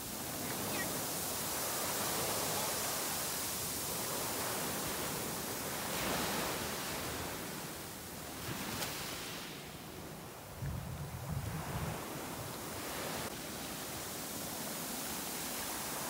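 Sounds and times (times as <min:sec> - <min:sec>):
waves washing up beach: 0:00.0 - 0:16.0.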